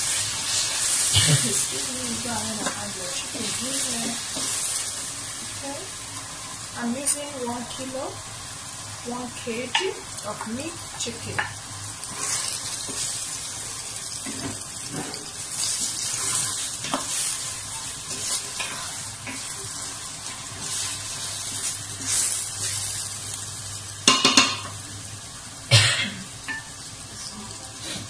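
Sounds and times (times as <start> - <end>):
meat sizzling in a pot: 0.0 - 28.0
wooden spoon scraping pot: 14.8 - 22.4.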